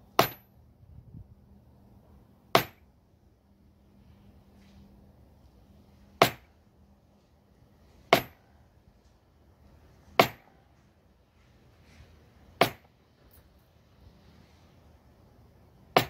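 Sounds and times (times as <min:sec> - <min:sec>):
mallet striking metal tool: 0:00.2 - 0:00.4, 0:02.6 - 0:02.8, 0:08.1 - 0:08.4, 0:10.2 - 0:10.4.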